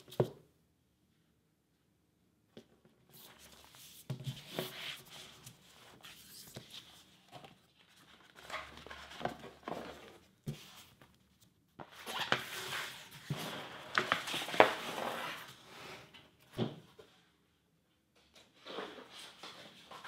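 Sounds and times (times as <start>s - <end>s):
paper and board rustling: 3.1s - 15.5s.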